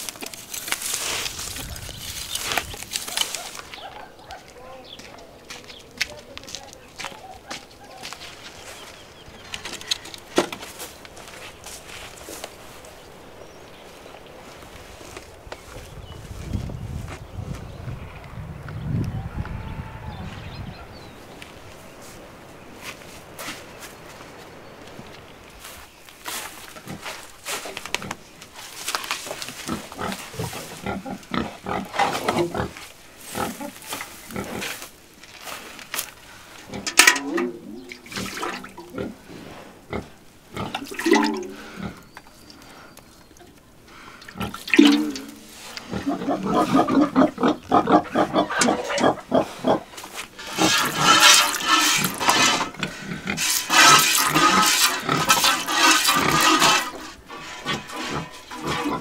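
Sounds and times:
rustling in straw: 0:00.0 - 0:04.1, 0:06.4 - 0:09.7, 0:10.6 - 0:17.2, 0:21.4 - 0:36.8, 0:44.4 - 0:47.1, 0:49.5 - 0:59.0
milk squirting into metal pail: 0:36.8 - 0:38.9, 0:40.7 - 0:41.6, 0:44.2 - 0:45.5, 0:50.4 - 0:52.8, 0:53.4 - 0:59.0
cow grunting: 0:44.2 - 0:59.0.

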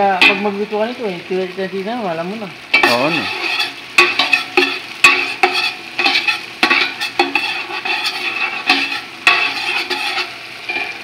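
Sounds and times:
garlic and onion sizzling: 0:00.0 - 0:11.0
spoon scraping a steel pot: 0:02.8 - 0:11.0.

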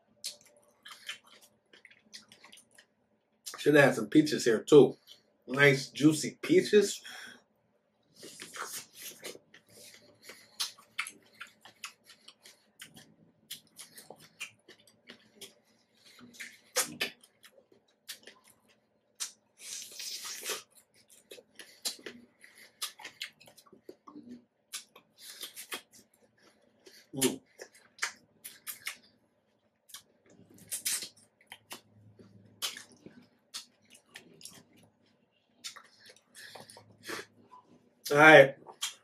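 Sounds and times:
wet chewing mouth sounds: 0:00.2 - 0:03.6, 0:08.1 - 0:29.2, 0:29.9 - 0:37.8, 0:38.6 - 0:39.0
slurp: 0:08.1 - 0:14.6, 0:19.2 - 0:20.7.

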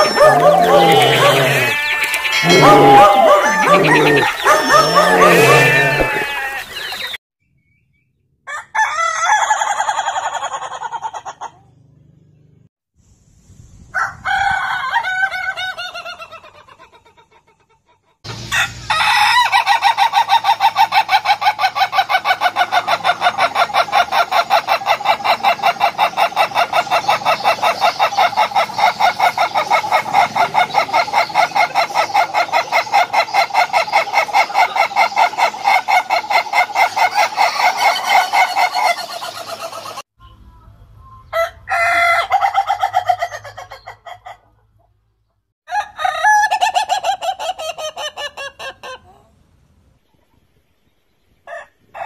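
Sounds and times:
rooster crowing: 0:00.0 - 0:06.9, 0:08.5 - 0:10.6, 0:18.5 - 0:19.8.

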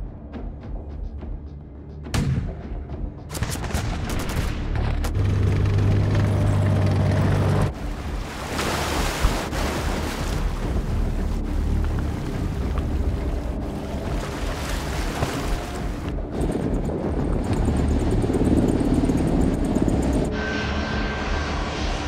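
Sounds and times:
cinematic music: 0:00.0 - 0:22.0
gunshots and booms: 0:03.3 - 0:04.8
loud deep drone: 0:10.5 - 0:22.0.

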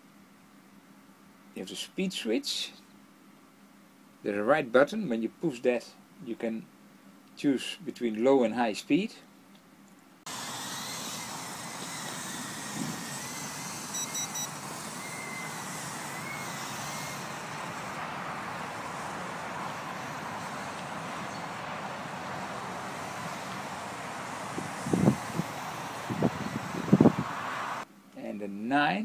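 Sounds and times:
faint wavering whine: 0:10.3 - 0:27.3
quadcopter propellers whirring: 0:10.3 - 0:27.9
quick high beeps: 0:13.9 - 0:15.6.

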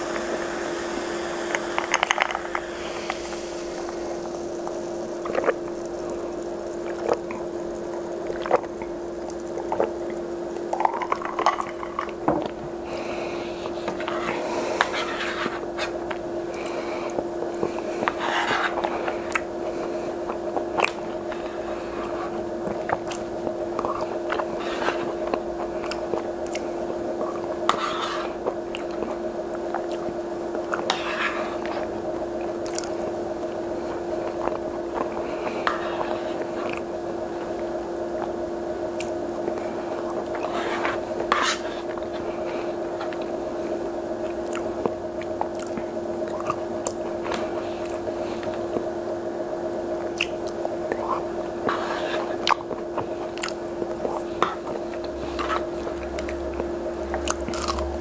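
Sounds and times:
steady low hum: 0:00.0 - 0:58.0
chewing: 0:01.5 - 0:33.1, 0:33.8 - 0:38.3, 0:44.2 - 0:48.9, 0:50.0 - 0:58.0
wet mouth noises: 0:44.2 - 0:47.0, 0:50.1 - 0:51.3, 0:52.4 - 0:58.0.

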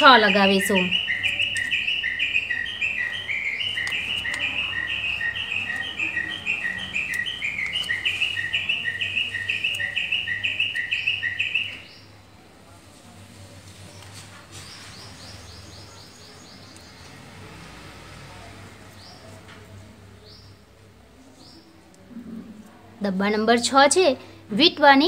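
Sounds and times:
bird chirping: 0:00.0 - 0:12.2, 0:13.8 - 0:17.4.

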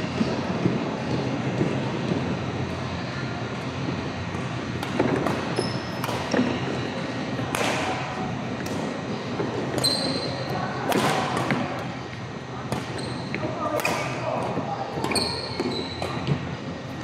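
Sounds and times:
rackets striking shuttlecock: 0:04.8 - 0:06.5, 0:07.4 - 0:08.9, 0:10.8 - 0:11.9, 0:12.7 - 0:14.2
shoes squeaking on court floor: 0:05.2 - 0:06.6, 0:09.7 - 0:10.5, 0:12.7 - 0:13.6, 0:15.0 - 0:16.4.

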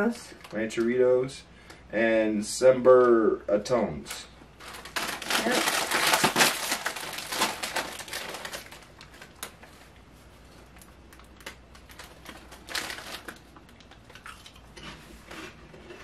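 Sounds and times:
chips crunching: 0:04.6 - 0:09.6
foil snack bag crinkling: 0:04.6 - 0:10.0, 0:10.6 - 0:14.5.

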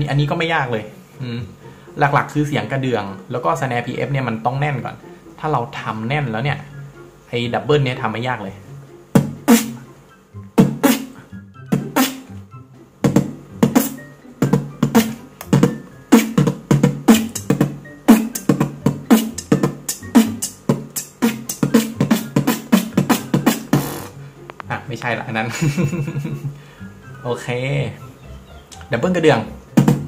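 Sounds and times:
human beatbox: 0:09.2 - 0:09.9, 0:10.6 - 0:12.3, 0:13.0 - 0:24.2, 0:29.8 - 0:30.0.

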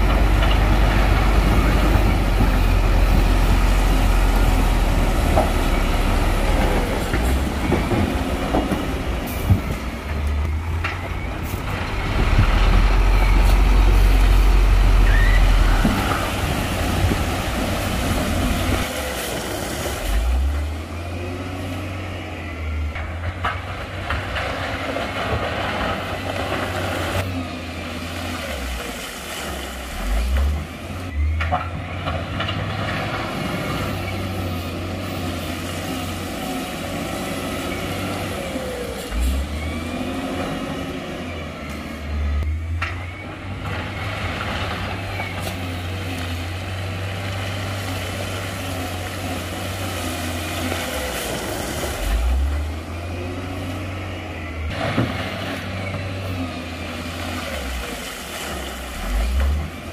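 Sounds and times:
diesel machinery engine drone: 0:00.0 - 0:59.9
high squeals: 0:15.0 - 0:16.2.

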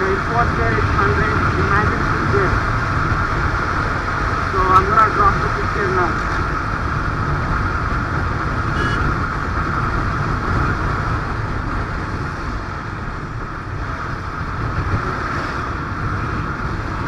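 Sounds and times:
motorcycle engine running: 0:00.0 - 0:17.0
wind rushing on microphone: 0:00.0 - 0:17.0.

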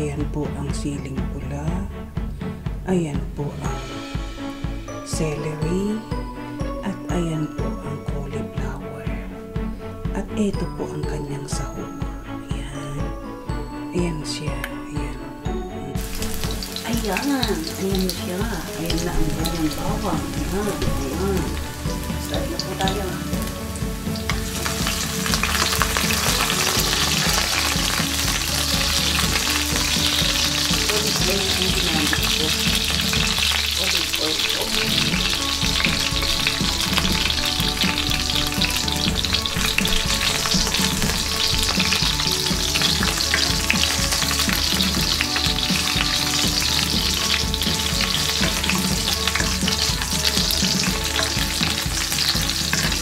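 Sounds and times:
garlic sizzling in hot oil: 0:16.0 - 0:53.0
spoon stirring oil: 0:16.0 - 0:53.0.

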